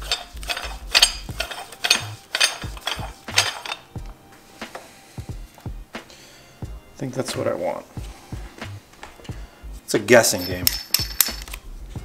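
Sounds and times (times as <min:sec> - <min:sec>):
metal clicking and clinking: 0:00.0 - 0:03.9, 0:10.3 - 0:11.6.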